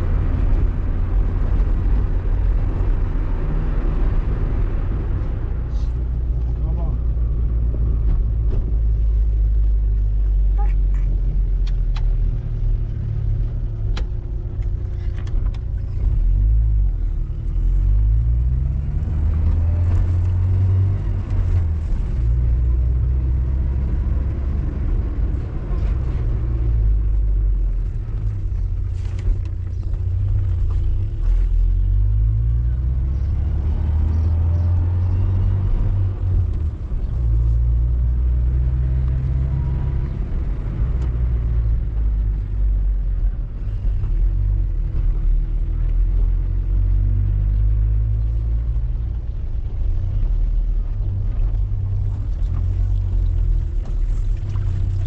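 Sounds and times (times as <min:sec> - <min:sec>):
road noise: 0:00.0 - 0:55.0
vehicle engine revving: 0:12.3 - 0:50.2.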